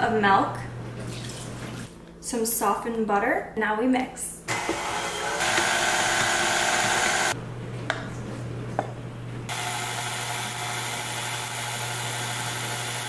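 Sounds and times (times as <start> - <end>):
stand mixer motor whirring: 4.5 - 7.4, 9.5 - 13.0.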